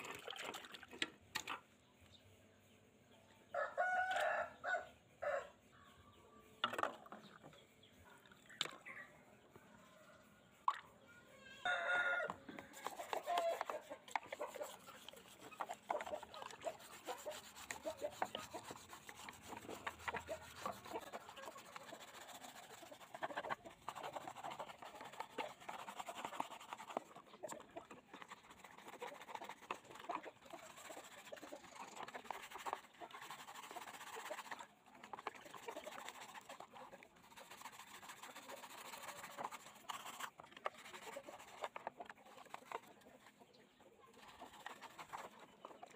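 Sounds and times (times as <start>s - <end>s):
hand scraping and rubbing a part: 12.5s - 43.4s, 44.1s - 45.9s.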